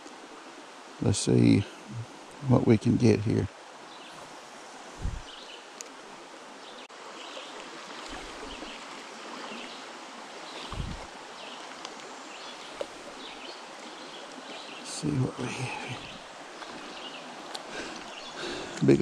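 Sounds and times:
creek water over rocks: 0:00.0 - 0:02.6, 0:03.4 - 0:19.0
low bumps: 0:05.0 - 0:05.4, 0:10.6 - 0:11.1.

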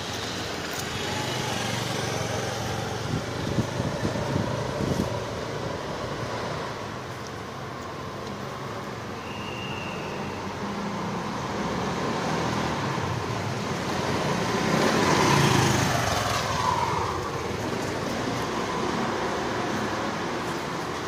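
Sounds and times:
road traffic noise: 0:00.0 - 0:21.0
vehicle passing: 0:10.9 - 0:21.0.

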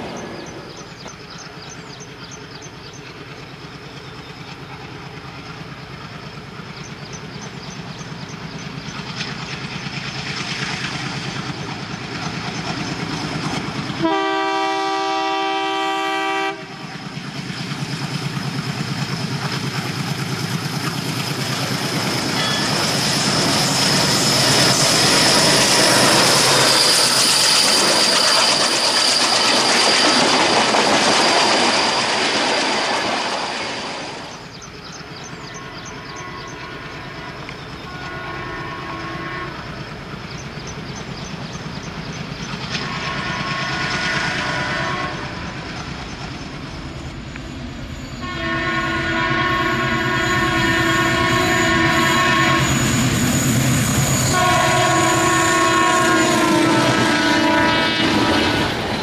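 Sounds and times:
diesel locomotive engine: 0:00.0 - 0:59.0
train wheels rattling on track: 0:00.0 - 0:59.0
train horn: 0:14.0 - 0:17.1, 0:35.4 - 0:39.8, 0:42.7 - 0:45.6, 0:48.2 - 0:53.4, 0:54.1 - 0:58.8.

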